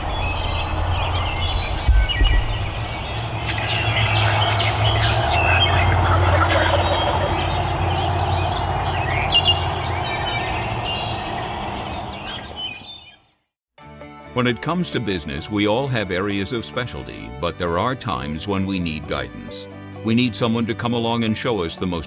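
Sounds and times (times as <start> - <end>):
steady low hum: 0.0 - 12.3
songbirds chirping and singing: 0.0 - 13.4
dull bumps: 1.6 - 6.1.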